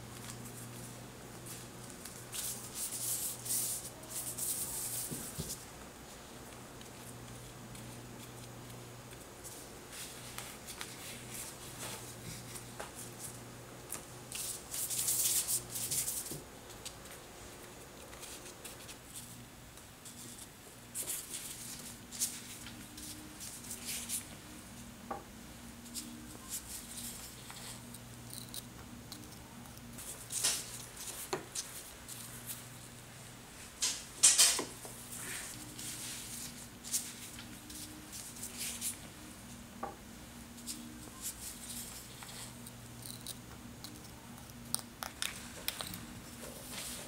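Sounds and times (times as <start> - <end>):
plastic gloves rustling: 0.0 - 24.5, 34.9 - 39.6, 40.5 - 43.0
low steady hum: 0.0 - 47.0.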